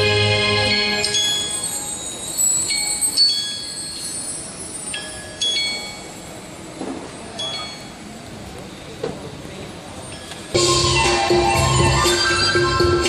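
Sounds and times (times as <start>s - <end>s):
high bell-like chimes: 0.6s - 8.1s, 10.0s - 10.9s.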